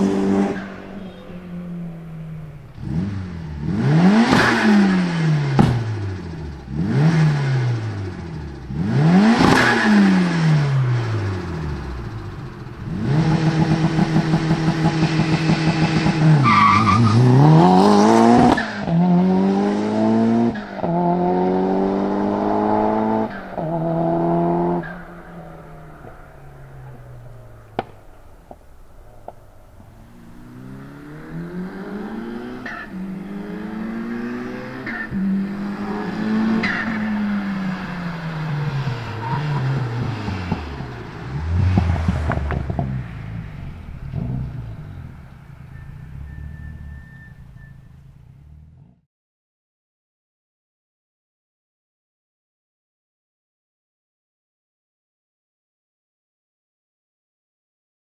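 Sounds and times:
car engine revving and accelerating: 0.0s - 28.0s, 29.8s - 47.7s.

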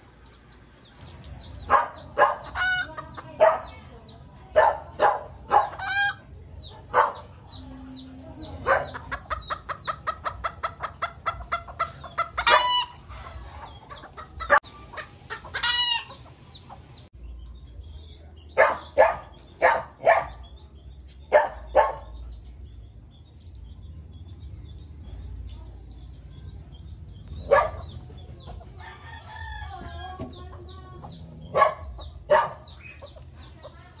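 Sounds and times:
chicks peeping: 0.1s - 34.0s
hen clucking: 1.3s - 17.1s, 27.2s - 34.0s.

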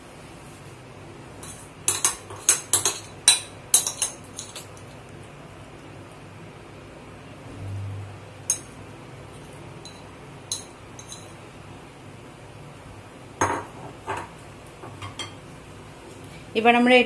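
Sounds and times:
utensils clinking against dishes: 1.4s - 4.9s, 9.8s - 11.4s.

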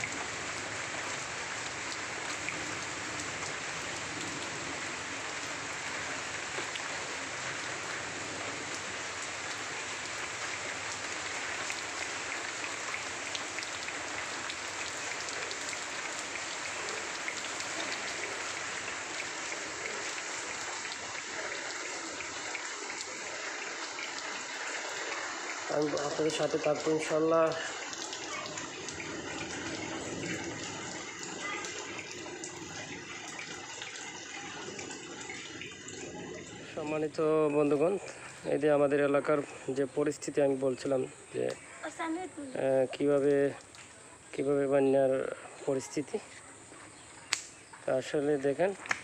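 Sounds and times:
heavy rain falling: 0.0s - 49.0s
faint drip ticks: 41.3s - 41.7s, 42.9s - 44.4s, 46.4s - 49.0s.

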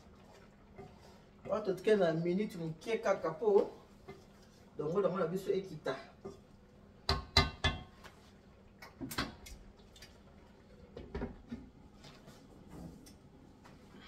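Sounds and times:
wooden spoon knocking on pot: 7.0s - 8.0s.

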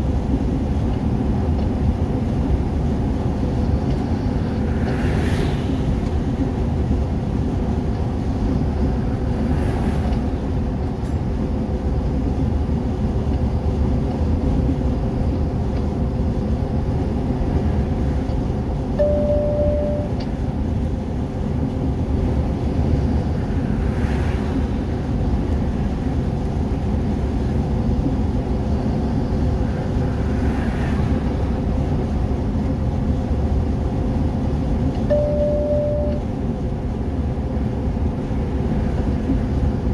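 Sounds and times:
engine and road rumble: 0.0s - 39.9s
short beep: 19.0s - 20.2s, 35.1s - 36.3s.

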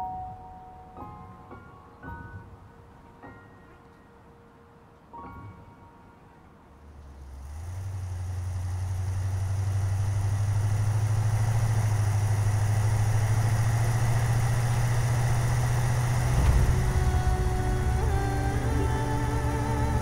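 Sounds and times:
road and wind noise: 6.4s - 20.0s
vehicle engine running: 7.0s - 20.0s.

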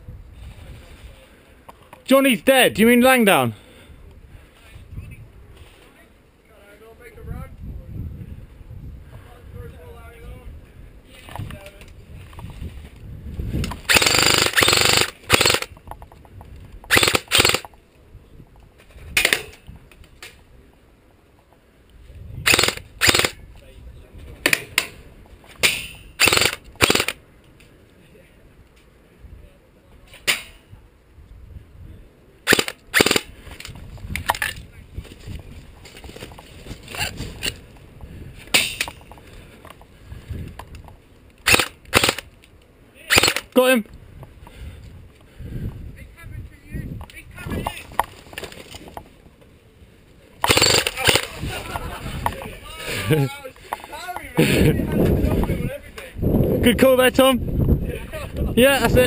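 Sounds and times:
low wind rumble: 0.0s - 1.7s, 2.4s - 43.0s, 43.9s - 53.5s, 54.4s - 59.0s
airsoft rifle automatic fire: 13.9s - 15.7s, 16.9s - 17.7s, 22.5s - 23.4s, 26.2s - 27.2s, 32.5s - 33.3s, 41.5s - 42.2s, 43.1s - 43.5s, 50.4s - 51.4s
loud sharp cracks: 13.9s - 15.8s, 16.9s - 17.7s, 22.5s - 23.4s, 25.6s - 27.2s, 32.4s - 33.3s, 41.4s - 42.3s, 43.1s - 43.6s, 50.4s - 51.4s.

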